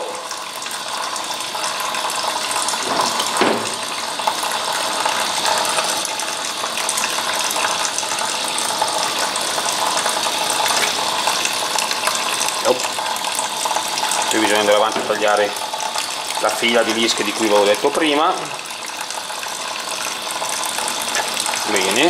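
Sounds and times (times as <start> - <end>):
tap running into a sink: 1.7 - 6.2, 8.8 - 19.0.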